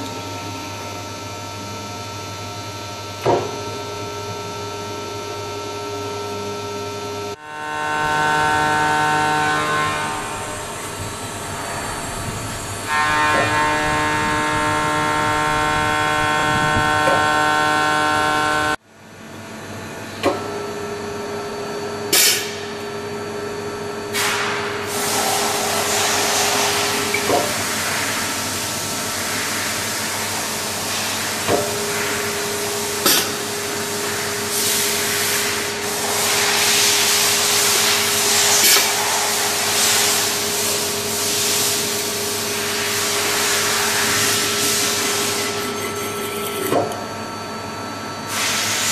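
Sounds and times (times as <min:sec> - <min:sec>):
motor whine: 0:00.0 - 0:18.8
machine hum: 0:00.0 - 0:48.3
hiss: 0:24.2 - 0:27.0, 0:34.5 - 0:42.0, 0:48.3 - 0:48.9.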